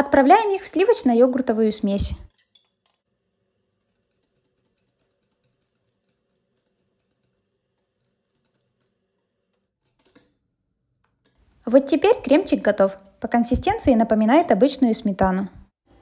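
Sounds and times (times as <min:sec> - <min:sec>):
wire whisk clicking in glass bowl: 0:02.2 - 0:10.4.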